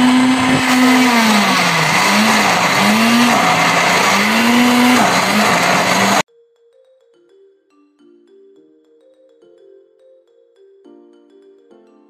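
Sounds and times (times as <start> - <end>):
blender running: 0.0 - 6.2.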